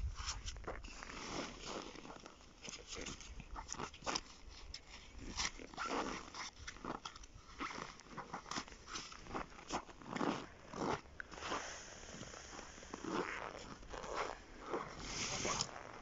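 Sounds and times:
tent fabric rustling: 11.3s - 16.0s.

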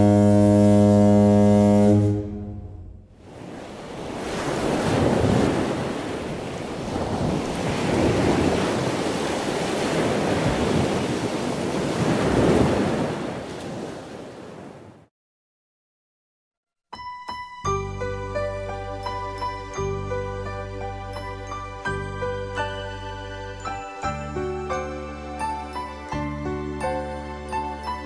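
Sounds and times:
low steady horn tone: 0.0s - 3.1s
ocean waves: 3.1s - 15.1s.

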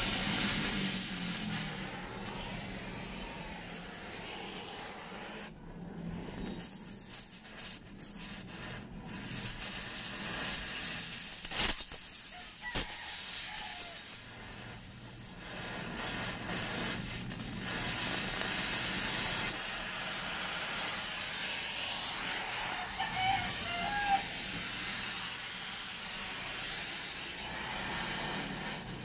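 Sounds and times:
cutting torch flame hissing: 0.0s - 29.0s
sharp pops: 11.4s - 12.1s.

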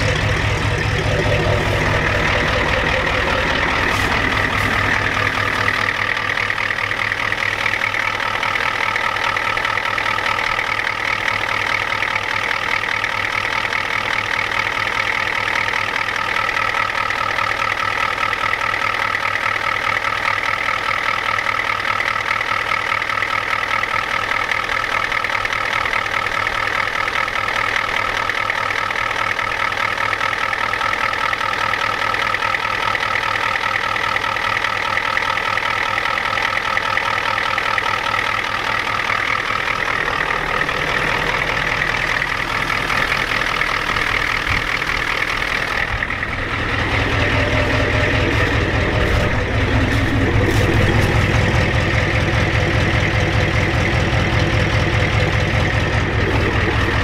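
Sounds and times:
alternator high-pitched whine: 0.0s - 8.2s, 39.0s - 57.0s
diesel engine idling: 0.0s - 57.0s.

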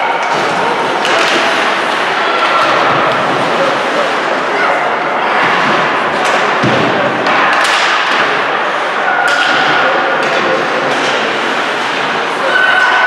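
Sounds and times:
spectators: 0.0s - 13.0s
sticks and puck knocking: 6.2s - 8.3s.

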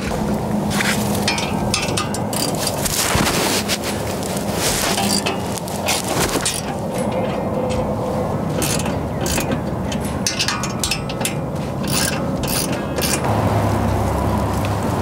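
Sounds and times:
ratchet wrench clicking: 8.6s - 9.5s, 10.2s - 13.2s.

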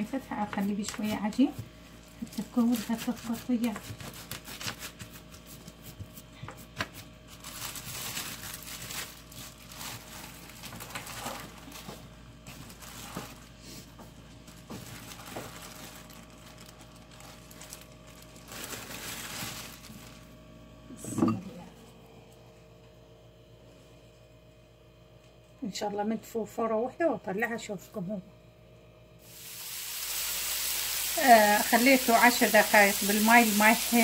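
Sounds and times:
plastic film crinkling: 2.1s - 5.8s, 6.7s - 20.4s.

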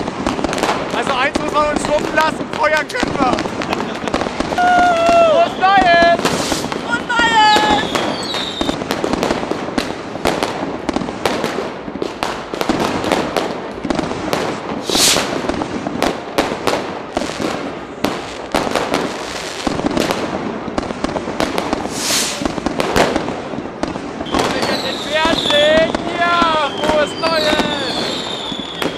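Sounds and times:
firework hissing rush: 0.0s - 8.8s, 14.5s - 15.5s, 21.6s - 23.4s, 24.2s - 28.9s
fireworks banging and crackling: 0.0s - 28.9s.

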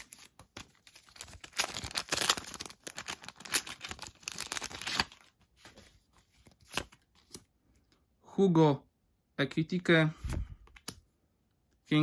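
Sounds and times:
foil wrapper crinkling and tearing: 0.0s - 5.3s.

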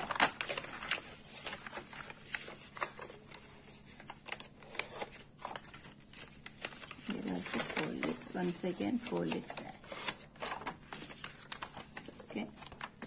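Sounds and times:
paper creasing clicks: 0.0s - 13.0s
paper rustling: 0.0s - 13.0s.

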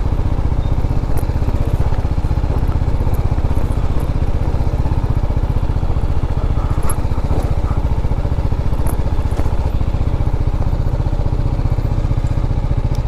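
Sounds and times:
motorcycle engine running: 0.0s - 13.0s
clicks and knocks from bike: 0.9s - 5.2s, 6.0s - 10.8s.

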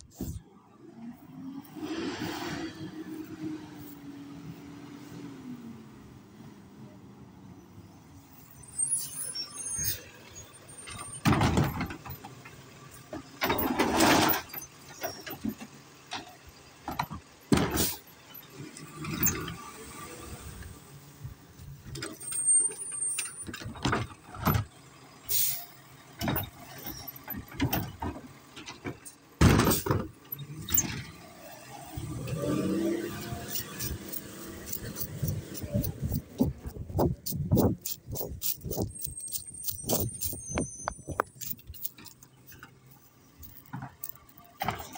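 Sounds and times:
air brakes hissing: 17.8s - 18.2s, 25.2s - 25.9s
diesel engine running: 23.5s - 44.9s.

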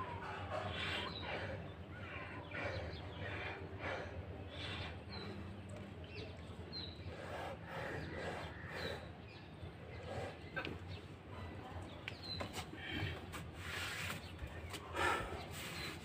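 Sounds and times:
man breathing hard: 0.0s - 5.7s, 6.8s - 10.6s, 14.8s - 16.0s.

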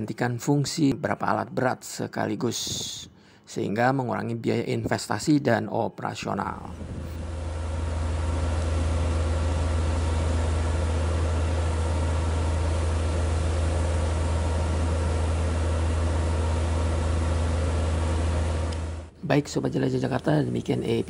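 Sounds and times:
engine steady low hum: 6.6s - 19.2s.

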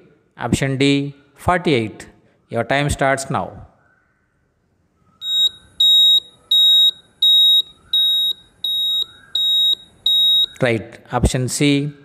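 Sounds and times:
high electronic beeps: 5.2s - 10.6s.

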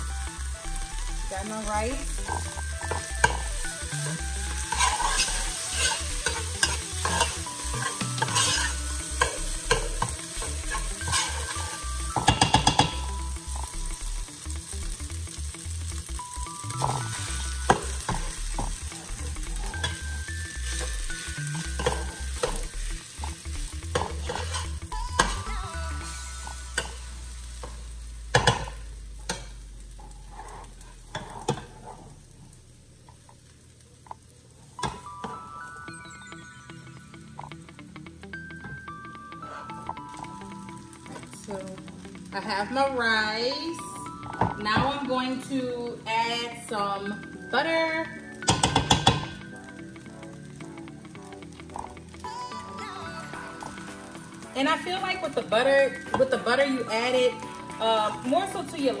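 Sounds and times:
frying sizzle: 0.0s - 59.0s
metal spoon scraping a pot: 4.0s - 13.0s, 23.9s - 25.4s, 30.0s - 32.1s.

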